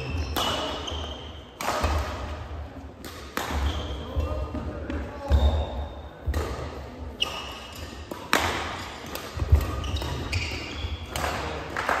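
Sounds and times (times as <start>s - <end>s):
shoes squeaking on floor: 0.0s - 1.5s, 3.6s - 4.6s, 7.1s - 11.2s
rackets smacking shuttlecock: 0.0s - 5.6s, 6.2s - 12.0s.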